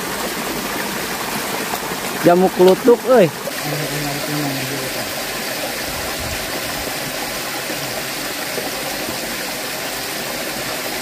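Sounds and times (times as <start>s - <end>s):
river rushing over rocks: 0.0s - 11.0s.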